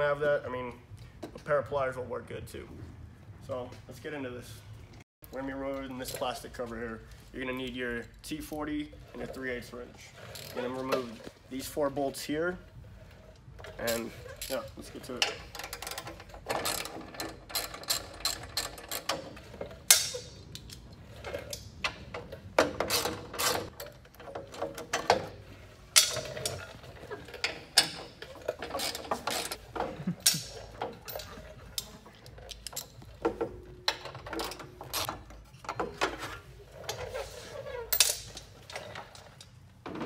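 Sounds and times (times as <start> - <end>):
tool and plastic knocks and rattles: 13.1 - 40.0.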